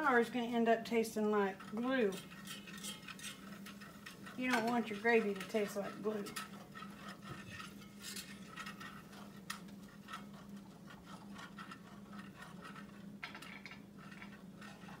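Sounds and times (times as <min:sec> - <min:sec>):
wire whisk scraping iron skillet: 0:00.0 - 0:15.0.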